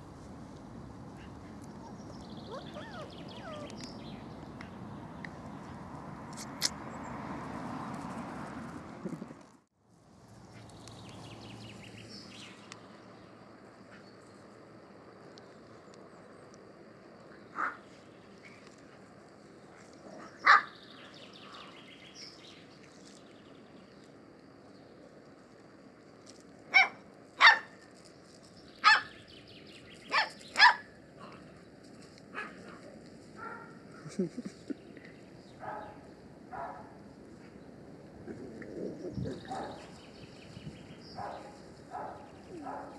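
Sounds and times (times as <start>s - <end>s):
faint outdoor ambience: 0.0s - 42.9s
puppy yapping: 1.2s - 3.9s
faint high bird chirp: 1.8s - 4.4s.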